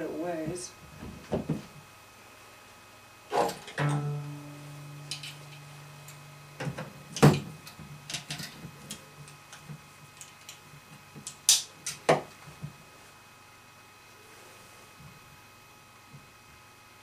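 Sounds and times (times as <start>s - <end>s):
faint low ringing tone: 3.8s - 7.1s.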